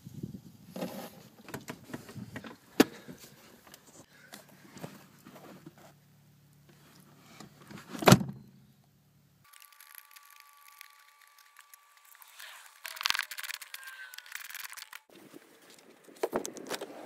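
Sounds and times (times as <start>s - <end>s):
metal and plastic clicks and scrapes: 9.5s - 15.1s.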